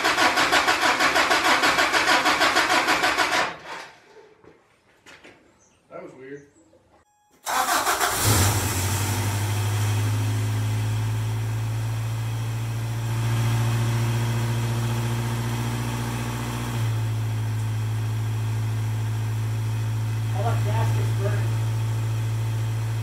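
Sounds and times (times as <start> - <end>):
car engine idling: 7.5 - 23.0.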